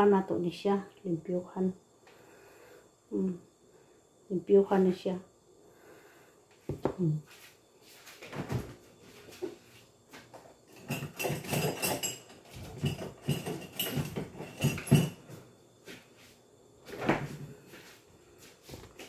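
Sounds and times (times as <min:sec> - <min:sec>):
utensils and dishes clinking: 0:10.7 - 0:15.3.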